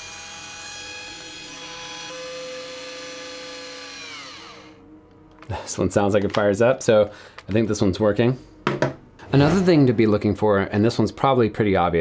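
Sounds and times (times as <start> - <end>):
camera electric whine: 0.0 - 4.8.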